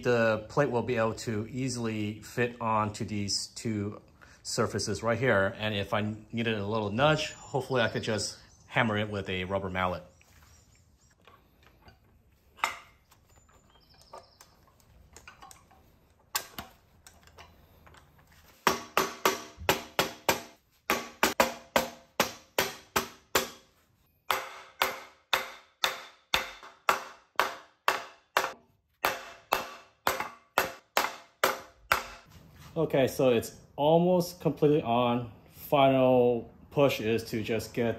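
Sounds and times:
mallet on wooden block: 18.6s - 23.6s, 24.3s - 32.3s.

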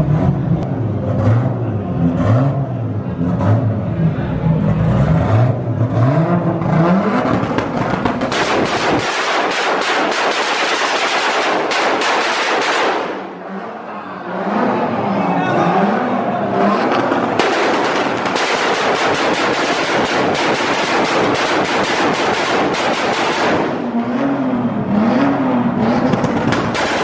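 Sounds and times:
car engine revving: 0.0s - 27.0s
exhaust pops and bangs: 7.2s - 13.2s, 16.9s - 23.9s, 26.0s - 27.0s.

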